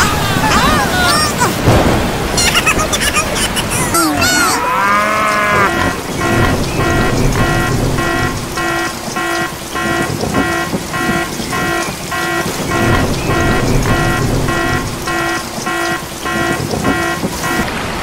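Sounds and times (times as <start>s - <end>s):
alarm beeping: 4.3s - 17.8s.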